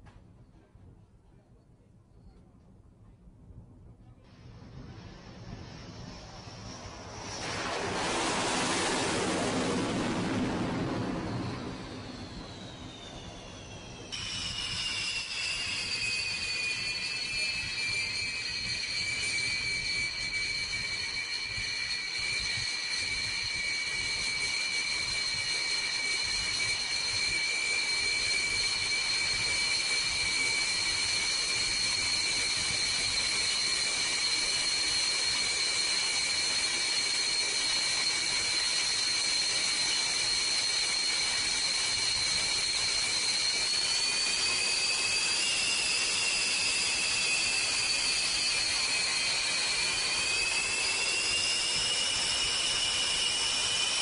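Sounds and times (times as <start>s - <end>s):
aircraft turbine engine whine: 4.1s - 54.0s.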